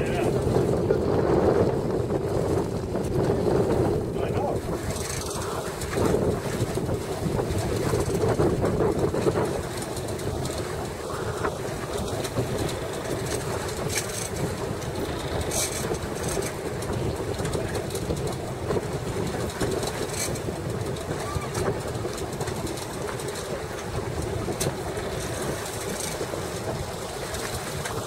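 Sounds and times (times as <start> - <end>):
boat engine running: 0.0 - 28.0
hiss of sea and wind: 0.0 - 28.0.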